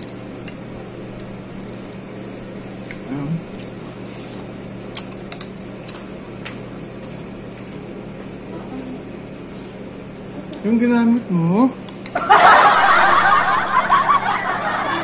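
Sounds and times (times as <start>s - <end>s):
chopsticks clicking on bowl: 0.0s - 3.7s, 4.9s - 6.6s
soft chewing: 0.0s - 8.8s
steady low hum: 0.0s - 15.0s.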